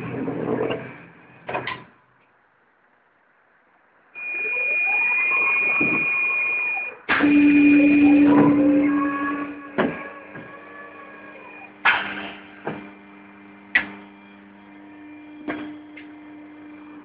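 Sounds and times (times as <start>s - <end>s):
drive humming: 4.2s - 17.0s.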